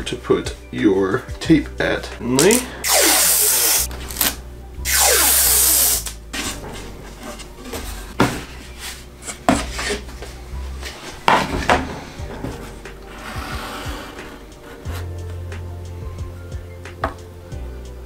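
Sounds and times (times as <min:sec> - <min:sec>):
tape tearing off roll: 0:02.4 - 0:06.6.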